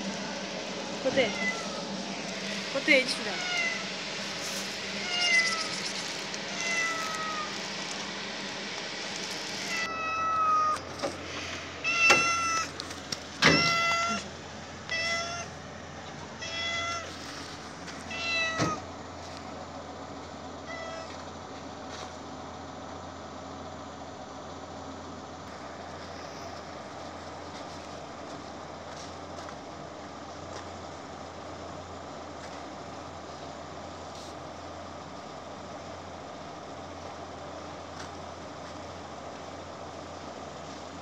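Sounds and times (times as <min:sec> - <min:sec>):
cat meowing: 0:01.2 - 0:01.9, 0:03.4 - 0:03.9, 0:05.0 - 0:07.7, 0:09.7 - 0:10.8, 0:11.8 - 0:12.7, 0:13.4 - 0:14.3, 0:14.9 - 0:15.5, 0:16.4 - 0:17.2, 0:18.1 - 0:18.8, 0:20.6 - 0:21.2.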